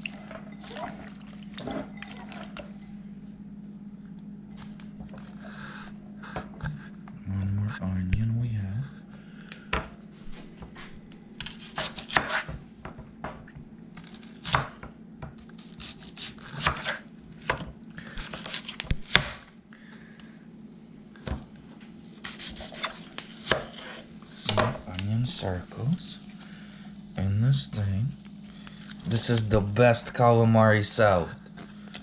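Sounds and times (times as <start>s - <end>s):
knife slicing onion on wooden board: 11.4s - 12.6s, 15.4s - 17.6s, 18.2s - 19.4s, 22.2s - 24.1s.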